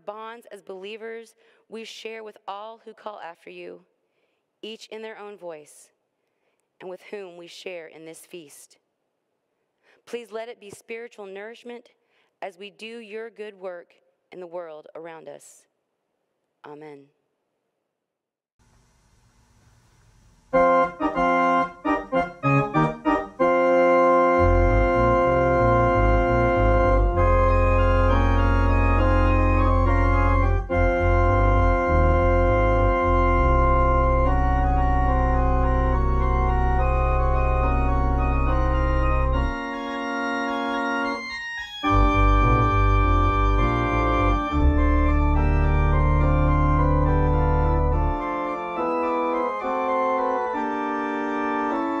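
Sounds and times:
deep organ pedal bass: 0:20.4 - 0:52.0
organ chords: 0:20.4 - 0:52.0.

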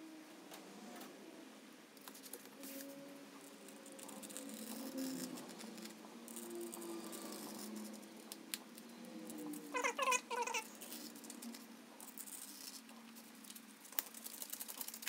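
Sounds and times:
light scratching: 0:02.0 - 0:15.0
tool squeaking against foam: 0:09.7 - 0:10.9.

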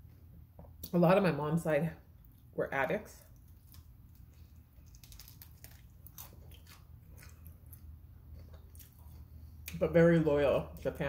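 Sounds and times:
chewing crisp food: 0:03.2 - 0:09.8.

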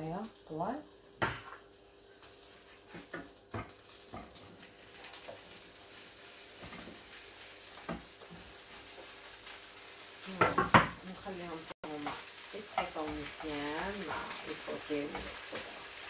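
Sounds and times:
faint sizzle: 0:00.0 - 0:16.0
utensil knocking on board and pan: 0:01.2 - 0:01.6, 0:02.9 - 0:04.4, 0:10.4 - 0:11.0.

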